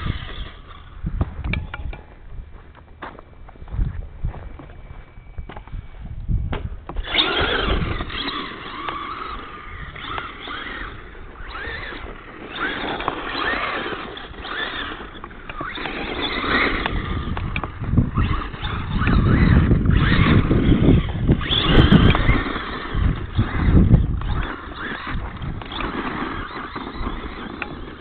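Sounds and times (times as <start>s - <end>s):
toy truck motor whining: 0.0s - 1.0s, 6.9s - 28.0s.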